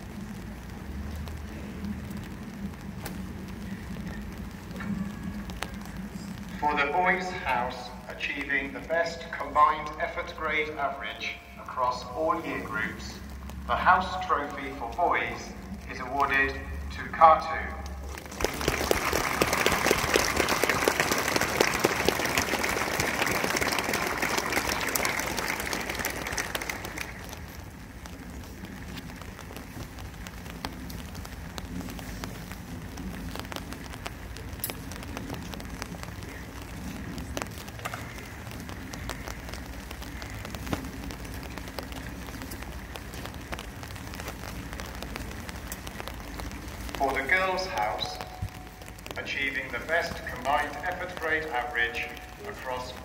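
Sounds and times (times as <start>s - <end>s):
rain pattering on umbrellas: 0.0s - 53.0s
crowd applause: 18.0s - 29.6s.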